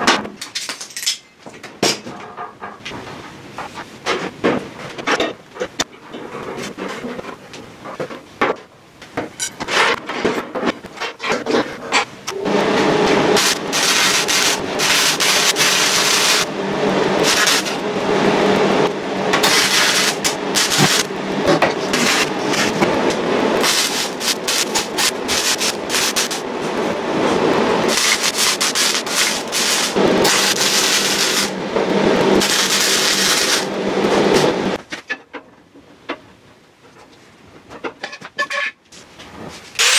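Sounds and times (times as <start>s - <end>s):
welder arc crackling: 12.2s - 34.8s.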